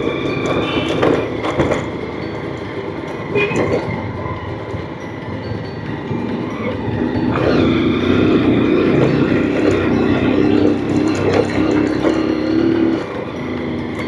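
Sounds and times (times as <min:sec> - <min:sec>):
road and wind noise: 0:00.0 - 0:14.0
motorcycle engine running: 0:06.2 - 0:14.0.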